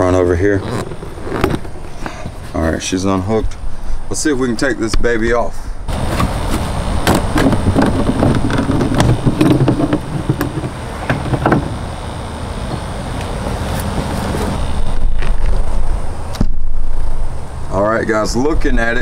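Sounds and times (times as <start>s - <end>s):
plastic cover knocking and rattling: 7.1s - 11.8s.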